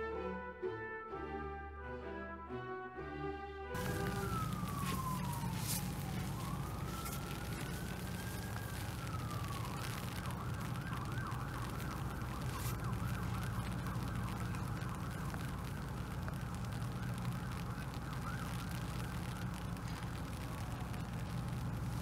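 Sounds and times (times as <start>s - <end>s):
emergency siren wailing: 3.8s - 22.0s
low rumble: 3.8s - 22.0s.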